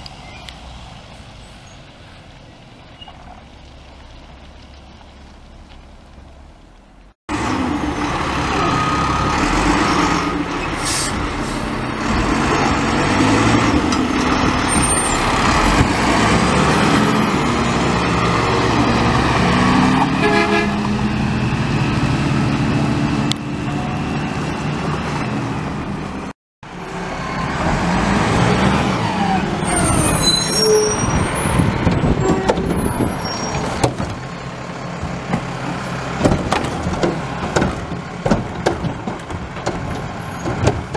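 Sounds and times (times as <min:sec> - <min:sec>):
garbage truck diesel engine: 0:00.0 - 0:40.9
high squeaks: 0:29.6 - 0:33.8.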